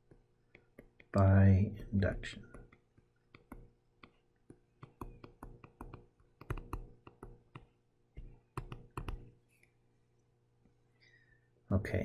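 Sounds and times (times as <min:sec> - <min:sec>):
stylus tapping on tablet screen: 0:00.0 - 0:01.2, 0:02.5 - 0:09.4.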